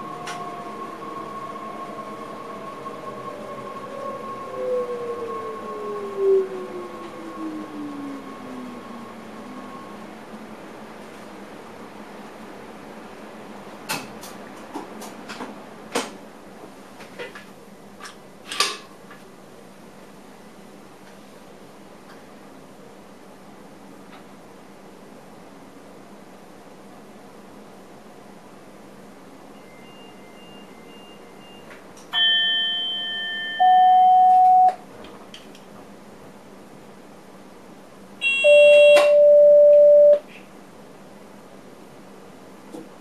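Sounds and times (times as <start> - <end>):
faint short beeps: 29.6 - 34.8, 38.2 - 40.3
bell-like warning chime: 32.2 - 34.7, 38.2 - 40.2.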